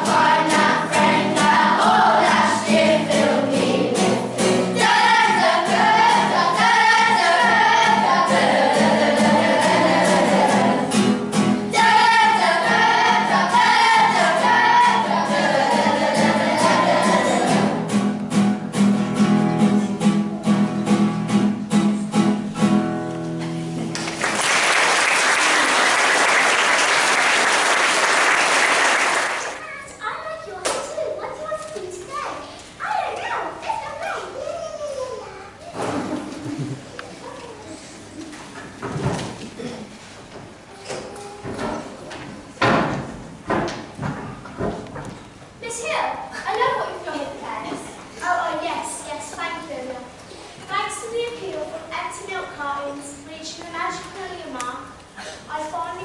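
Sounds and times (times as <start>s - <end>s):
children singing: 0.0s - 18.0s
audience applause: 23.9s - 29.6s.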